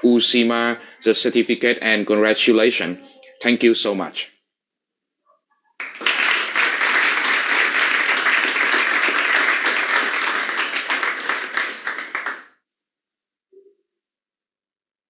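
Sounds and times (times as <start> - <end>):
applause: 5.8 - 12.6.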